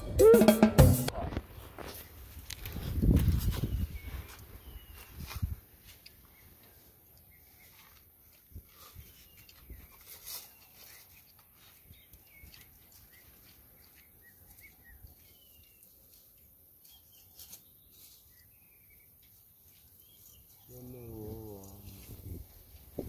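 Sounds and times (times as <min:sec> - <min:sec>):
faint bird chirps: 0:03.6 - 0:05.3.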